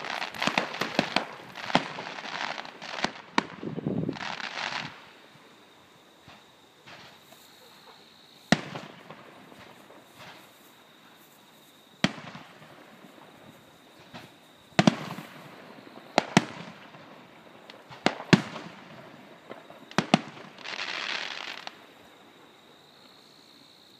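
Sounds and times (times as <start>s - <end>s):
firework shells bursting: 0.0s - 5.0s
dense crackling hiss: 0.0s - 23.9s.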